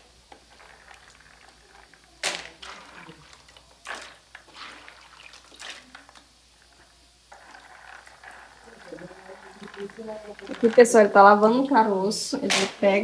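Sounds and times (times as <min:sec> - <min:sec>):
water sloshing in a basin: 0:02.5 - 0:06.7.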